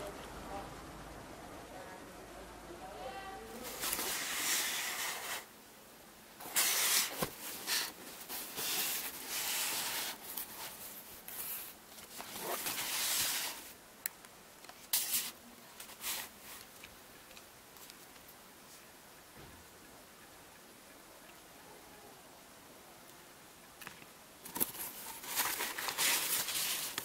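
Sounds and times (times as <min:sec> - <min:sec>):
packing paper rustling: 0:03.6 - 0:05.5, 0:06.4 - 0:13.8, 0:14.6 - 0:18.3, 0:24.4 - 0:27.0.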